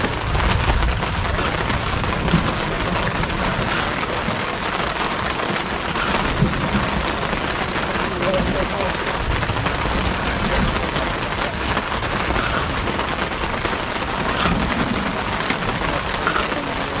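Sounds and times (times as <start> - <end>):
low rumble: 0.0 - 17.0
steady rain falling: 0.0 - 17.0.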